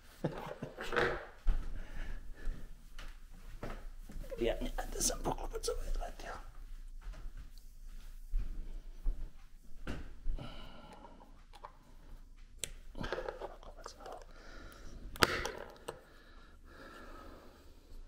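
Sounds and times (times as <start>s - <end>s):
person muttering: 4.3s - 6.0s
small parts clicking and knocking: 12.6s - 16.1s.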